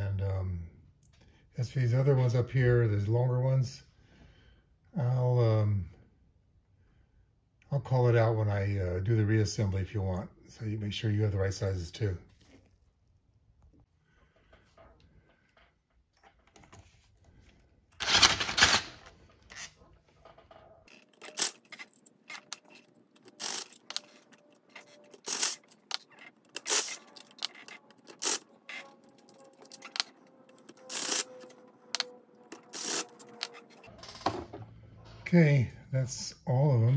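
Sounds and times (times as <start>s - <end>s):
hand tool and screws clicking: 20.9s - 33.7s.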